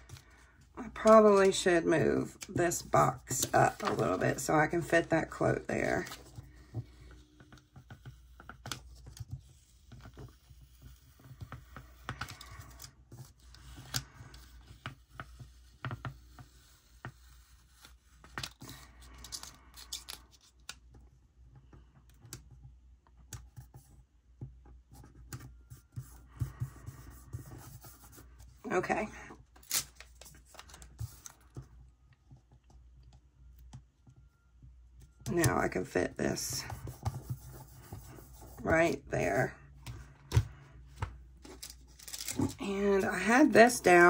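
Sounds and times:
paper rustling and scratching: 0:00.0 - 0:20.8, 0:29.6 - 0:31.6, 0:35.7 - 0:39.5, 0:41.4 - 0:44.0
paper stickers being peeled: 0:17.7 - 0:20.8, 0:41.5 - 0:42.6.

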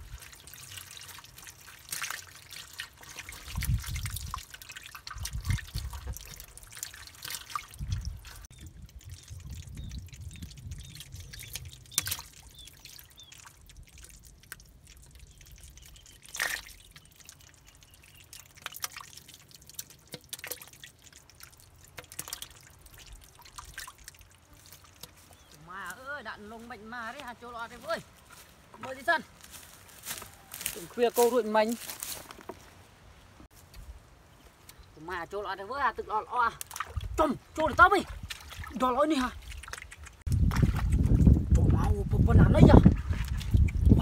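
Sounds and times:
fish splashing in water: 0:00.0 - 0:25.9, 0:38.0 - 0:41.2.

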